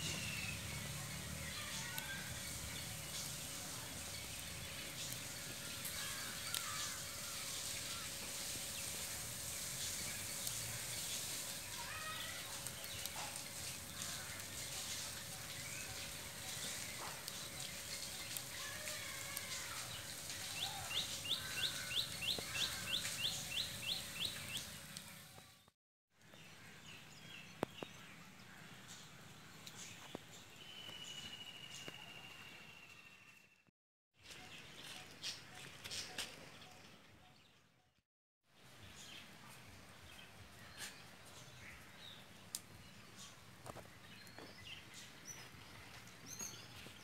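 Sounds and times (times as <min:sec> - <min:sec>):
outdoor background hiss: 0:00.0 - 0:33.2, 0:38.6 - 0:47.0
birds calling: 0:01.4 - 0:25.2.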